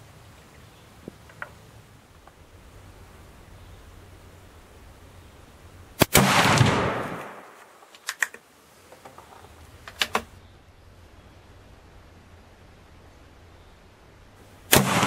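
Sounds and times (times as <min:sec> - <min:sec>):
rifle shot: 0:06.0 - 0:07.6, 0:14.7 - 0:15.0
rolling gunshot report: 0:06.0 - 0:07.8, 0:14.7 - 0:15.0
sharp rifle clicks: 0:06.0 - 0:08.5, 0:09.8 - 0:10.3.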